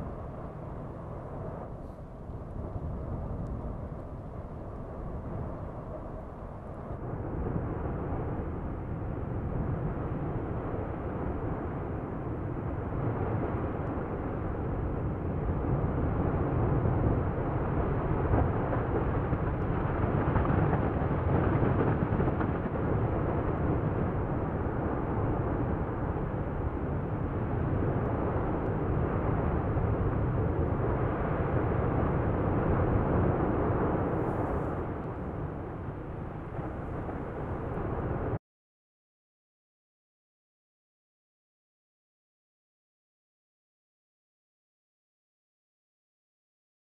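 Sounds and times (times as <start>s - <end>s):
volcano lava fountains roaring: 2.4s - 38.4s.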